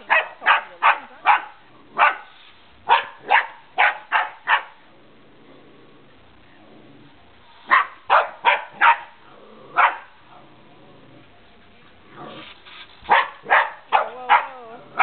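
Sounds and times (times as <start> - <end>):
puppy barking: 0.0 - 2.3, 2.9 - 4.8, 7.7 - 9.2, 9.8 - 10.2, 13.1 - 15.0.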